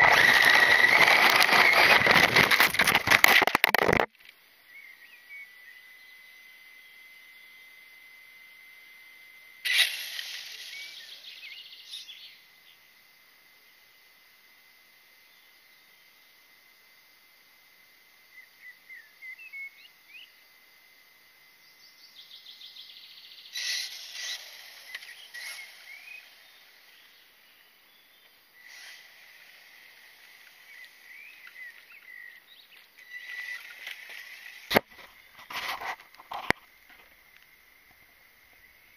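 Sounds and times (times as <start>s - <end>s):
rustling: 0.0s - 4.1s
birds chirping: 9.7s - 12.8s, 21.7s - 36.6s.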